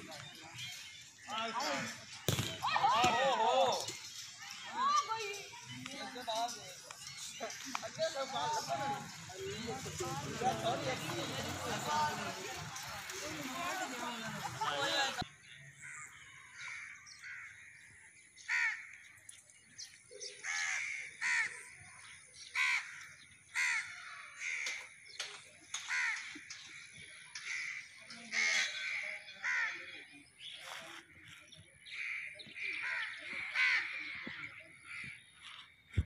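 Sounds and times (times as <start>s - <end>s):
crows cawing: 15.8s - 17.8s, 18.5s - 19.1s, 20.4s - 21.7s, 22.5s - 24.9s, 25.8s - 29.9s, 31.9s - 35.2s.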